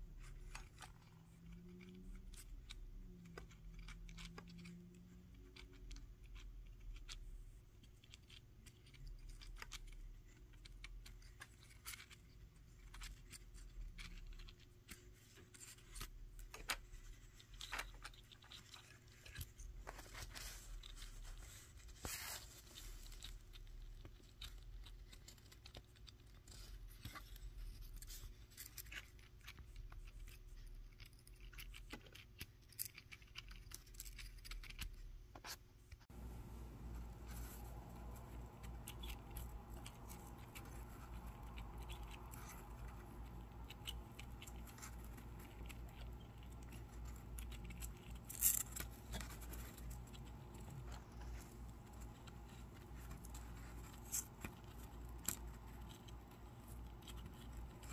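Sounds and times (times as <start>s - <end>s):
paper crinkling and rustling: 0.0s - 57.9s
steady low hum: 36.1s - 57.9s.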